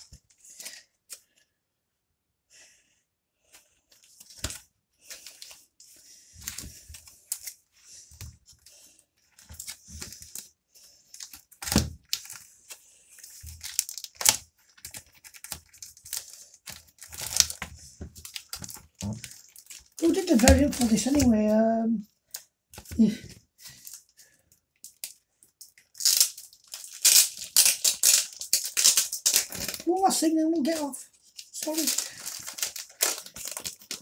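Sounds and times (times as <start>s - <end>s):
plastic bags rustling and crinkling: 3.5s - 22.0s, 22.8s - 34.0s
comics bumping against table: 20.1s - 21.4s.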